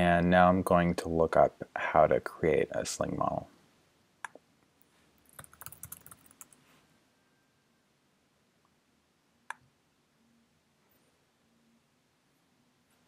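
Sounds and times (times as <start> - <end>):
typing on computer keyboard: 5.3 - 6.6.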